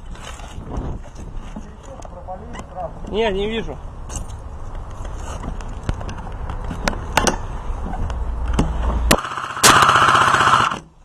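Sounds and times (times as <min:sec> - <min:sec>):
airsoft gun full-auto burst: 0:09.1 - 0:10.8.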